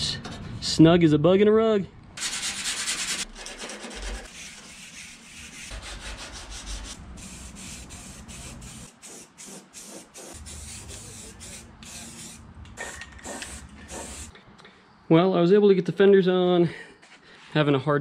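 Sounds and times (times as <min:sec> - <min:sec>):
rubbing on metal: 0:02.2 - 0:12.4
spray can hissing: 0:07.2 - 0:14.3.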